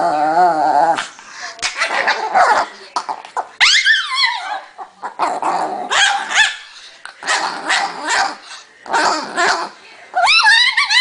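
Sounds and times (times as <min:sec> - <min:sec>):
small dog growling and yapping: 0:00.0 - 0:01.2, 0:03.6 - 0:06.2.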